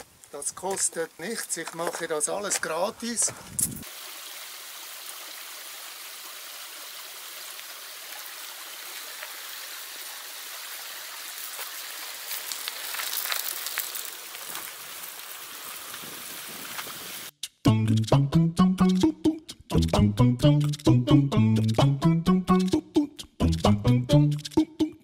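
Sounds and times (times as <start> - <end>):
bike tyres crunching gravel: 0.0 - 3.9, 8.1 - 17.3
stream water rushing: 3.8 - 12.8.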